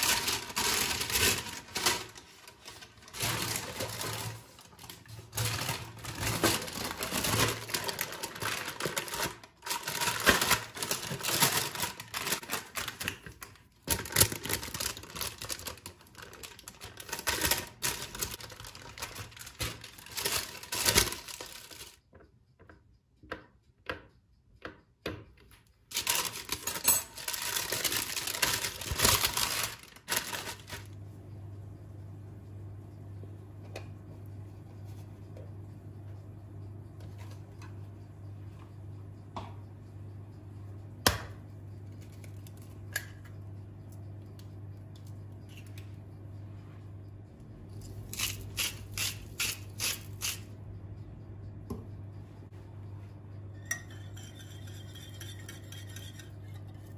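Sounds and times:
baking paper crinkling: 0.0 - 22.0, 25.9 - 31.0.

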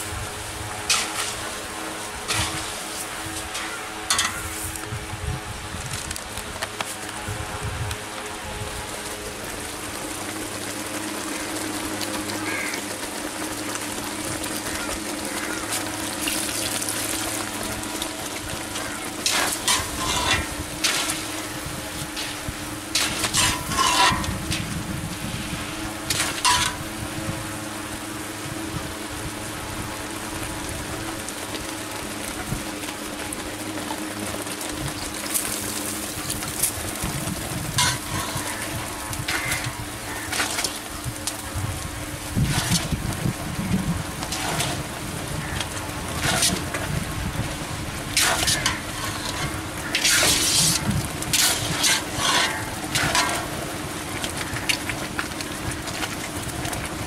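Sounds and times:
batter sizzling in hot oil: 0.0 - 6.0, 7.0 - 57.0
metal ladle scraping pan: 19.3 - 21.1, 23.0 - 24.4, 26.1 - 26.8, 37.8 - 38.7, 44.3 - 44.8, 48.2 - 50.8, 51.4 - 53.5.

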